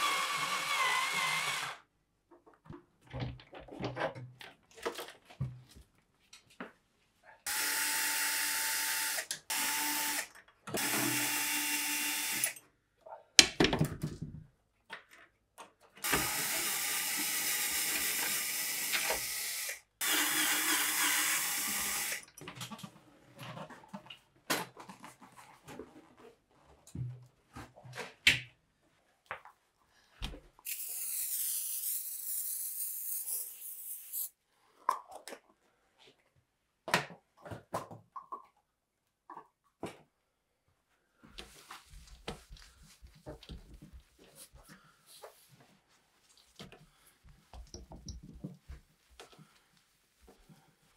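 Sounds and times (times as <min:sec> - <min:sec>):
cordless drill running: 0:00.0 - 0:01.8, 0:07.5 - 0:12.6, 0:16.0 - 0:22.2.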